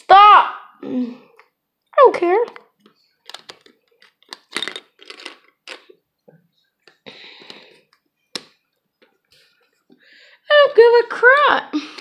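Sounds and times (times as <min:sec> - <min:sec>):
handling clicks and knocks: 0:02.4 - 0:06.0.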